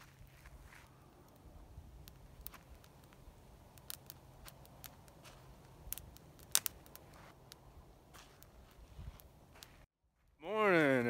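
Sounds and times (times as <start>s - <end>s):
sharp clicks and ticks: 1.3s - 7.6s.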